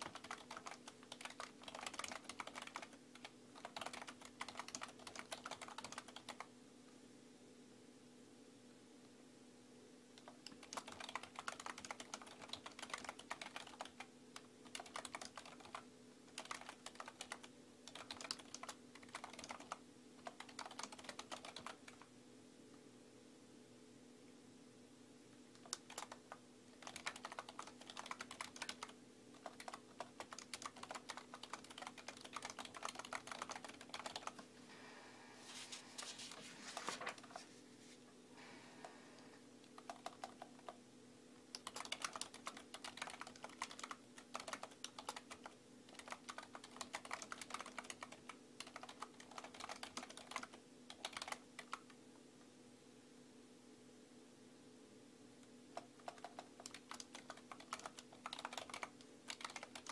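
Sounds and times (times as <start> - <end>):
keyboard typing clicks: 0.0 - 6.5, 10.2 - 22.1, 25.5 - 34.5, 39.6 - 40.8, 41.5 - 52.0, 55.7 - 59.9
faint low hum: 0.0 - 59.9.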